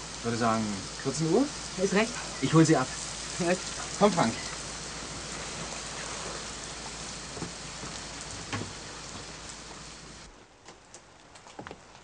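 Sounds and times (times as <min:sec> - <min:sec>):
steady rain: 0:00.0 - 0:12.0
faint knocks: 0:07.4 - 0:09.3.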